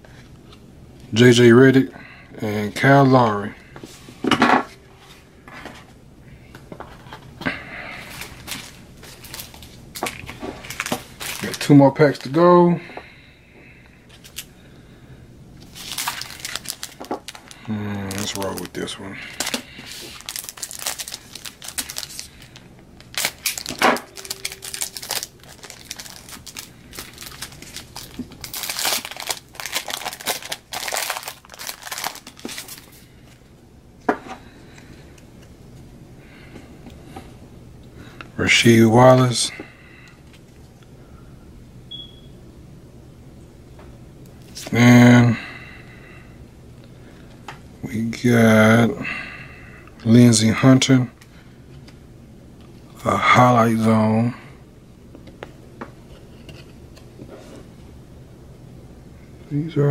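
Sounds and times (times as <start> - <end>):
foil wrappers rustling: 7.8 - 12.5, 14.1 - 14.5, 15.6 - 33.5.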